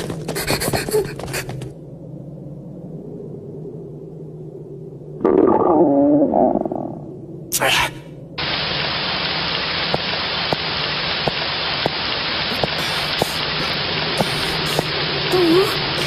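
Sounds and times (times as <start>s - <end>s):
steady rain falling: 7.6s - 16.0s
water drip ticks: 8.4s - 16.0s.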